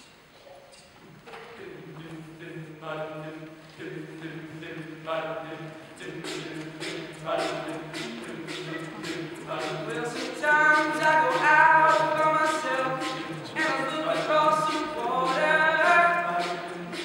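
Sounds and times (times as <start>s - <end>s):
vocal percussion beat: 1.3s - 17.0s
male group singing in harmony: 1.5s - 17.0s.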